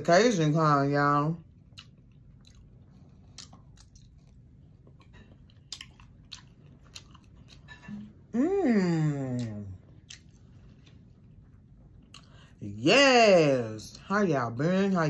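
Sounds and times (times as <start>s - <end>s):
person chewing shrimp: 1.4s - 8.0s, 9.4s - 12.6s.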